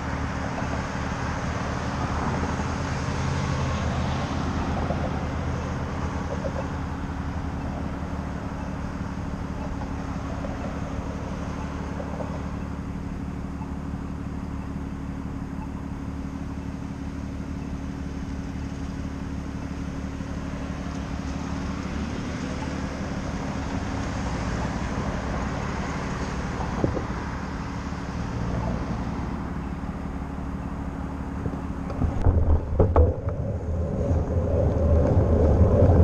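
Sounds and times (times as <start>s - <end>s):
road traffic hum: 0.0s - 36.0s
car passing: 20.2s - 36.0s.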